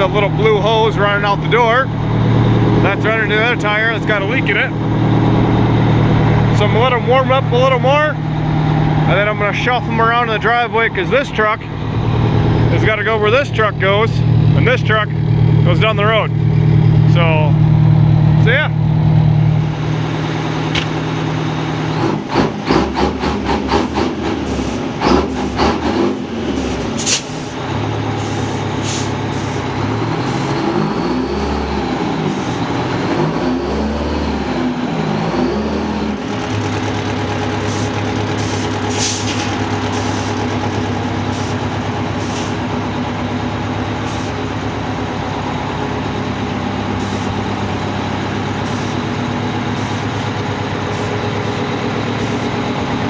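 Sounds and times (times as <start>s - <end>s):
diesel engine idling: 0.0s - 53.0s
fire truck engine revving: 0.0s - 53.0s
air brake hisses: 26.6s - 27.6s, 28.2s - 29.6s, 37.7s - 40.4s, 42.2s - 42.6s.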